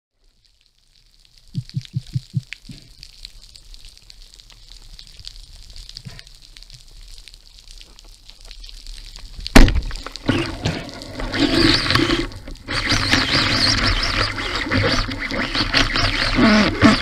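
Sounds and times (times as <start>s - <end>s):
churning rushing water: 10.2s - 17.0s.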